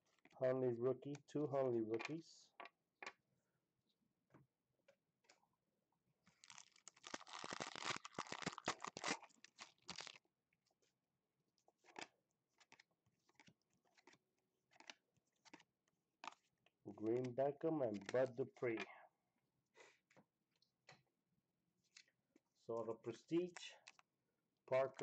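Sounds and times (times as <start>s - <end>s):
foil wrapper tearing and crinkling: 6.3s - 10.2s.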